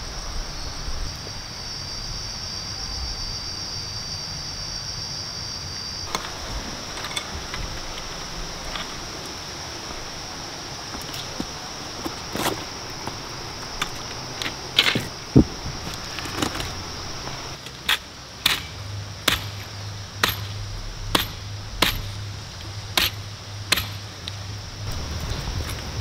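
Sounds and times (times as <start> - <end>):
footsteps on river stones: 6.1 - 18.0.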